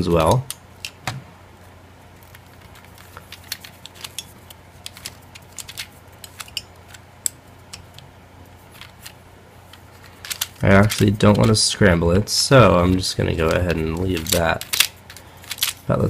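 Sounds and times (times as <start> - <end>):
plastic puzzle clicking: 2.3 - 8.0, 10.2 - 11.6, 13.4 - 15.8.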